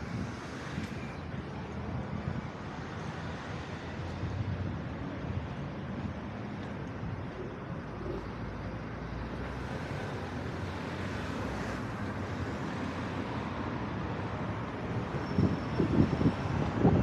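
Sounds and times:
city street traffic: 0:00.0 - 0:17.0.

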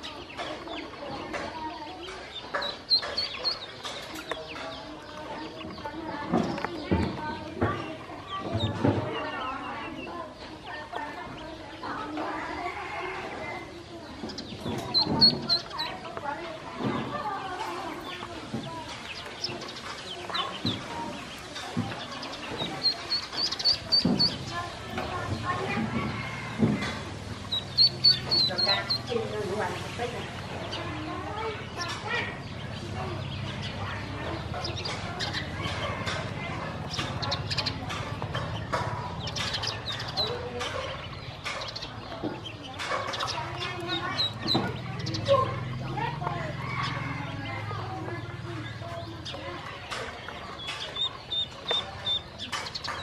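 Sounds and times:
ducklings peeping: 0:00.0 - 0:53.0
beaks clicking on feed bowl: 0:00.1 - 0:07.9, 0:13.8 - 0:16.2, 0:17.1 - 0:25.2, 0:26.9 - 0:30.8, 0:33.6 - 0:45.6, 0:49.0 - 0:53.0.

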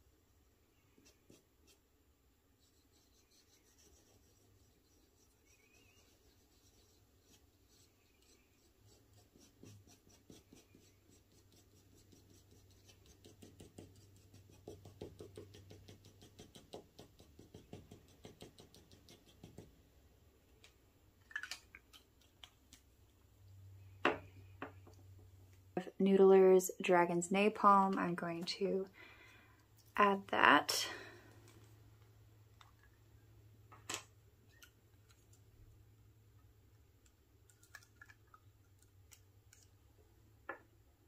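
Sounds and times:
pen nib scratching on paper: 0:02.6 - 0:19.7.

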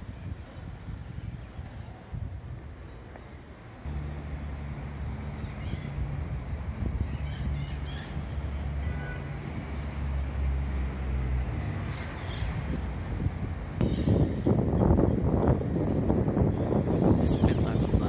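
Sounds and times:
vehicle engine droning: 0:03.5 - 0:17.9.

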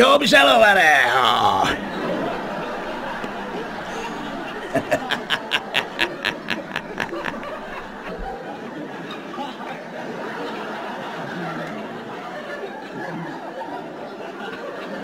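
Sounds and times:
man's villain laugh: 0:01.6 - 0:08.4.

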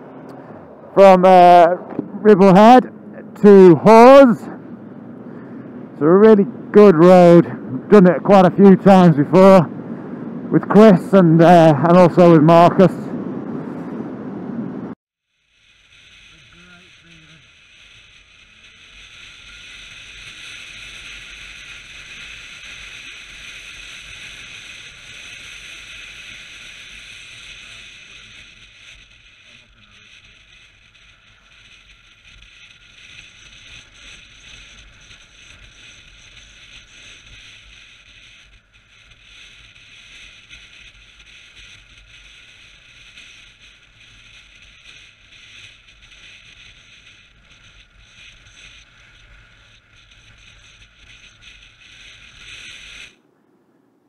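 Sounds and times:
wind rushing over camera: 0:12.3 - 0:15.0.

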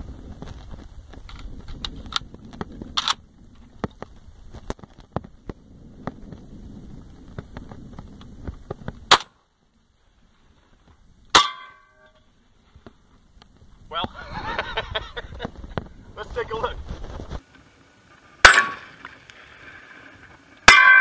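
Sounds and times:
rifle handling clicks and rattles: 0:01.2 - 0:02.4, 0:03.0 - 0:04.1
bullet ringing on steel plate: 0:11.4 - 0:12.2, 0:18.4 - 0:18.8, 0:20.7 - 0:21.0.

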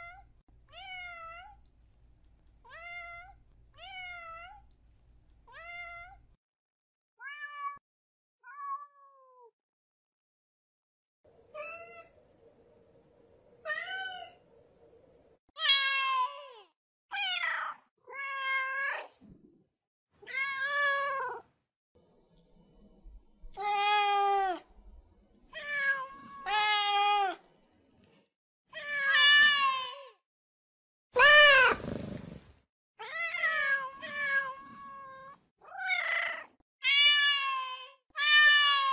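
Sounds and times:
cats meowing: 0:23.5 - 0:24.7, 0:25.6 - 0:27.4, 0:31.2 - 0:32.3.

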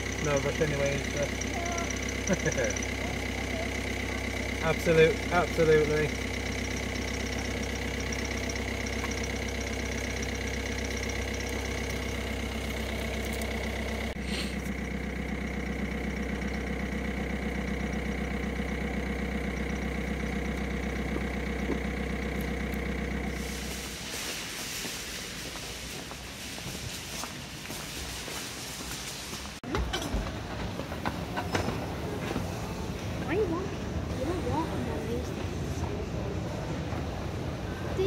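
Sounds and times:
car engine idling: 0:00.0 - 0:38.0
outdoor noise: 0:00.0 - 0:38.0.

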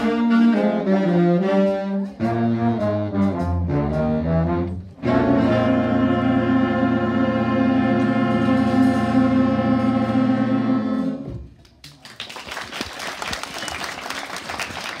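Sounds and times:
jazz big band chord: 0:00.0 - 0:11.4
audience applauding: 0:11.7 - 0:15.0.

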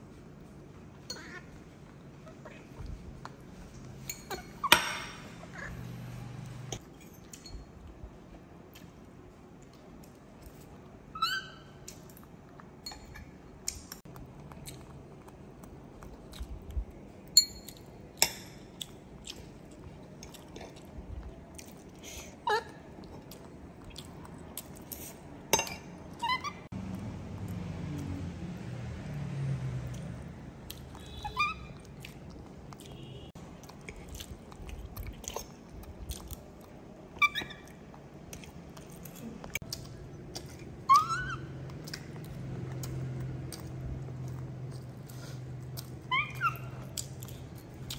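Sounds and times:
tableware clinking: 0:04.0 - 0:05.5, 0:25.5 - 0:26.0
baby monkey squeaking: 0:11.2 - 0:11.8, 0:26.2 - 0:26.7, 0:31.0 - 0:31.8, 0:37.2 - 0:37.7, 0:40.8 - 0:41.5, 0:46.1 - 0:46.9.

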